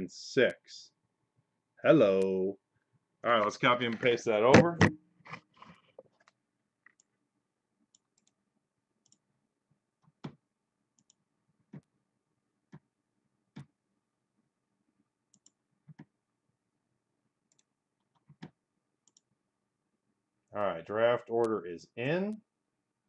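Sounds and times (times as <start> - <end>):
computer mouse clicks: 7.9 - 8.4, 9.0 - 9.2, 11.0 - 11.9, 15.3 - 16.1, 17.5 - 19.3.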